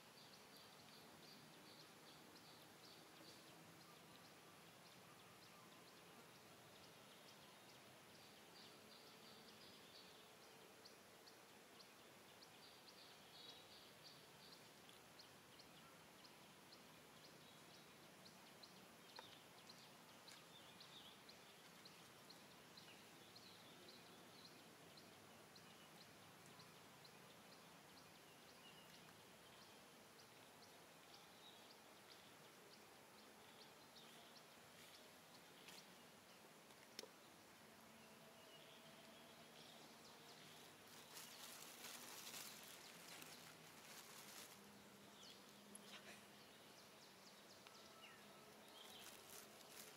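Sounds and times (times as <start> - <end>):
soft hiss: 0.0 - 49.9
faint chirps: 38.4 - 46.8.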